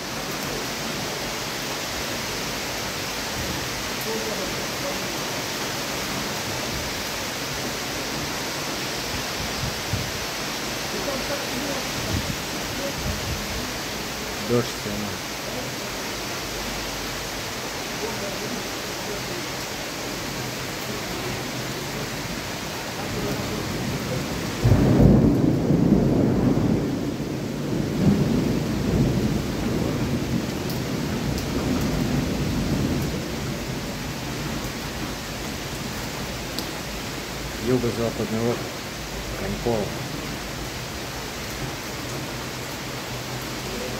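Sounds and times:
heavy downpour hissing: 0:00.0 - 0:43.9
torrential rain pouring: 0:00.0 - 0:43.9
thunder rumbling: 0:10.9 - 0:14.6, 0:23.0 - 0:40.8.

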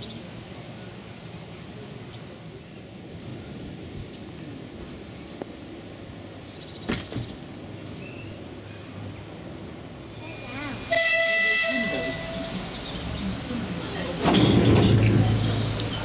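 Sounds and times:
diesel locomotive horn: 0:10.8 - 0:12.7.

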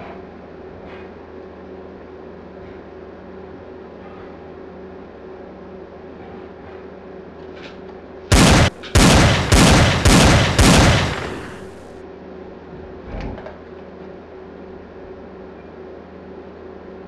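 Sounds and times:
low room hum: 0:00.0 - 0:17.0
revolver gunshots: 0:08.3 - 0:11.9.

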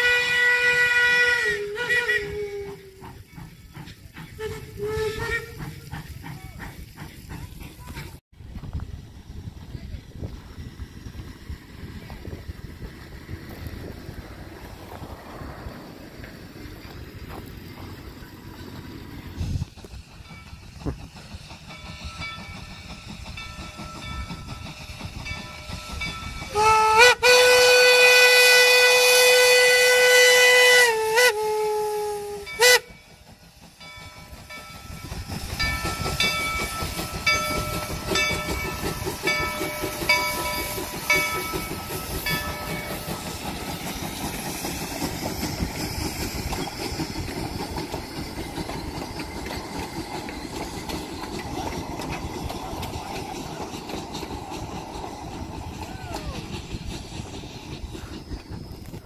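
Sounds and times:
steam whistle blasts: 0:00.0 - 0:03.2, 0:04.4 - 0:05.7, 0:26.5 - 0:33.0
steam locomotive exhaust: 0:00.0 - 0:59.0
train rolling on rails: 0:00.0 - 0:59.0.

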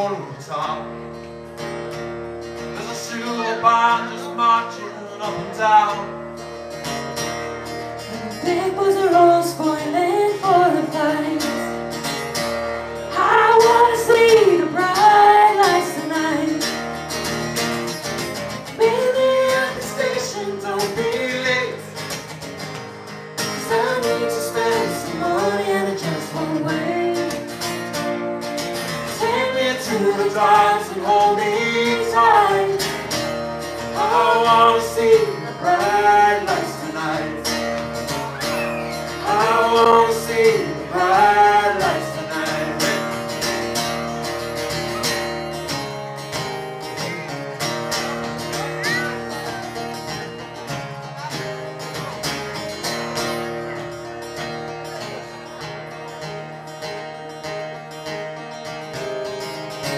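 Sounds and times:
guitar accompaniment: 0:00.0 - 0:59.9
woman singing: 0:08.3 - 0:11.7, 0:13.1 - 0:16.7, 0:18.7 - 0:21.7, 0:23.6 - 0:27.5, 0:29.2 - 0:32.9.

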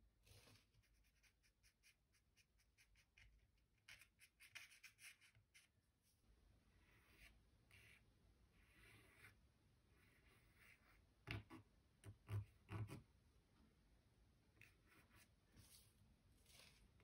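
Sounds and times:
twig scratching on paper: 0:00.5 - 0:05.7.

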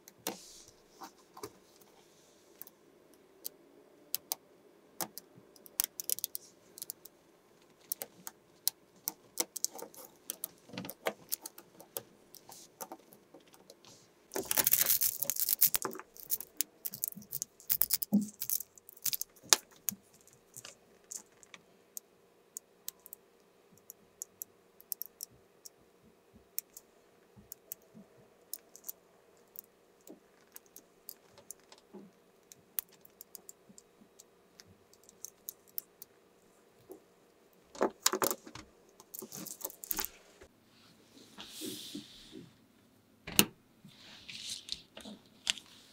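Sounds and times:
magnetic balls clicking: 0:02.6 - 0:04.4, 0:05.0 - 0:25.8, 0:26.5 - 0:36.2, 0:36.8 - 0:40.1
balls rattling clatter: 0:14.3 - 0:21.6.

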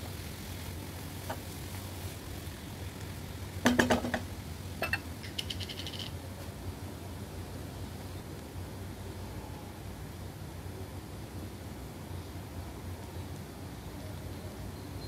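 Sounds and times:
spatula stirring in frying pan: 0:00.0 - 0:05.1
spatula knocking against pan: 0:03.7 - 0:05.0
rapid high ticks: 0:05.0 - 0:06.2.

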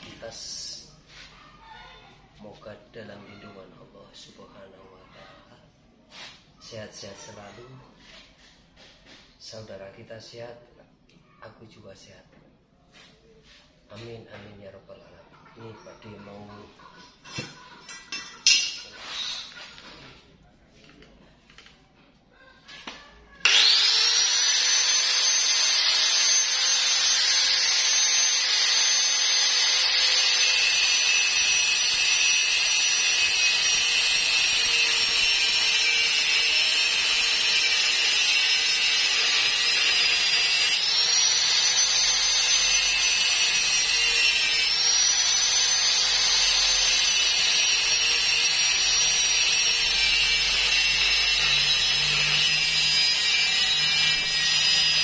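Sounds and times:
angle grinder cutting metal pipe: 0:17.2 - 0:20.1, 0:23.4 - 0:55.0.

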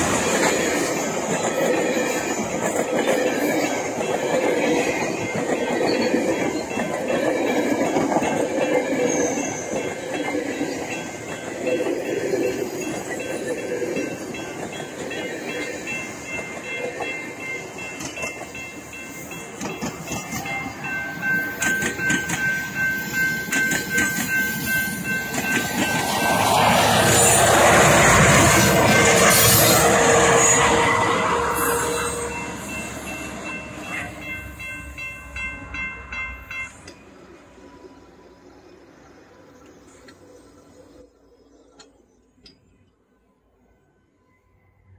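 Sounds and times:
train rushing past: 0:00.0 - 0:41.6
high ringing tones: 0:07.9 - 0:27.4, 0:30.4 - 0:36.9.

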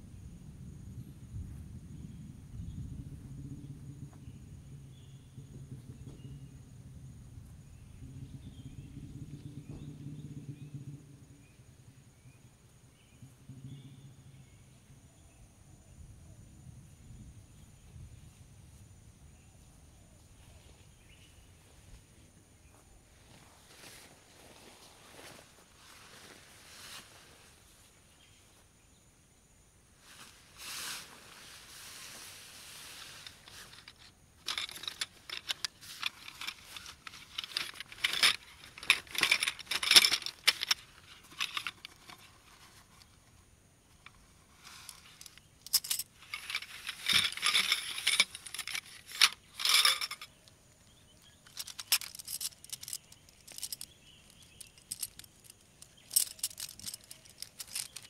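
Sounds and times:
nylon tent fabric rustling: 0:23.3 - 0:27.7, 0:30.0 - 0:43.3
small hard parts clicking: 0:33.2 - 0:50.6, 0:51.2 - 0:58.0.

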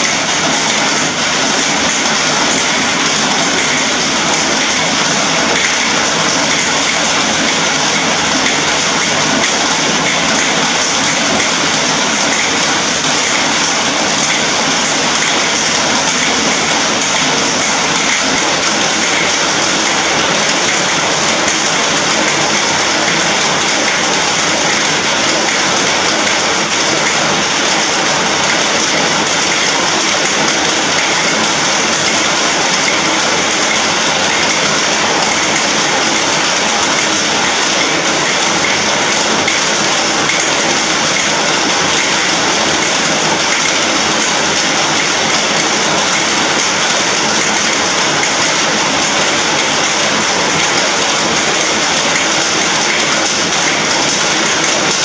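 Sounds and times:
heavy rain on iron roof: 0:00.0 - 0:55.0.

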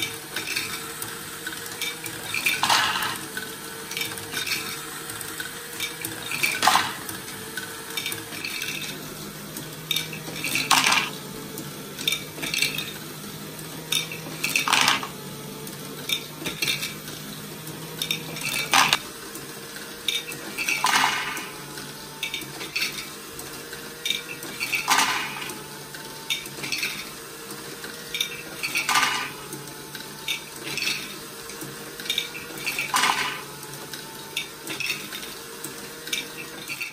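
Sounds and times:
faint motor hum: 0:00.0 - 0:36.9
plastic balls clattering: 0:01.6 - 0:07.3, 0:09.8 - 0:11.3, 0:13.8 - 0:15.2, 0:17.9 - 0:19.0, 0:20.1 - 0:23.1, 0:24.0 - 0:25.6, 0:28.1 - 0:29.6, 0:32.0 - 0:33.6.

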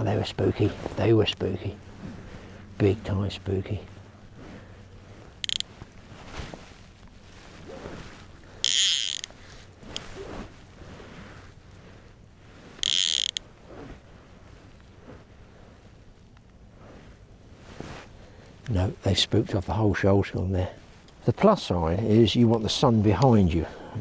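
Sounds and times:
fishing reel ratchet buzzing: 0:05.4 - 0:05.7, 0:08.6 - 0:10.1, 0:12.8 - 0:13.4.

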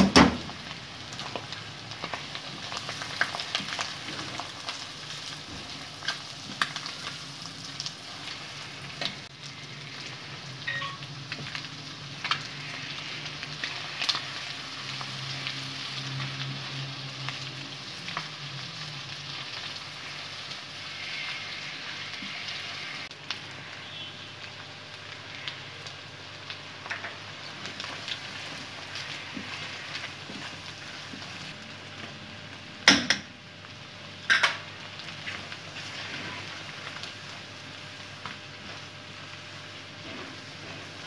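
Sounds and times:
food sizzling in hot oil: 0:00.0 - 0:41.0.

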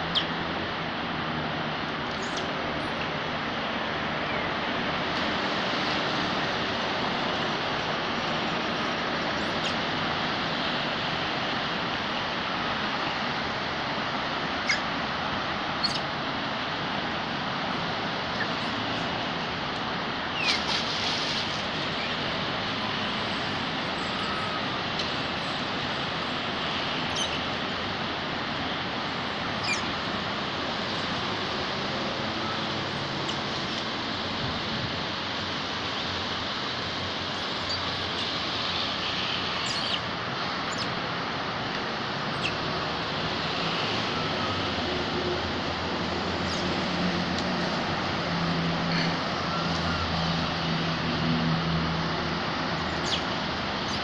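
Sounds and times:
high squeaks and clicks: 0:02.1 - 0:03.1, 0:20.4 - 0:22.2, 0:39.6 - 0:40.0.

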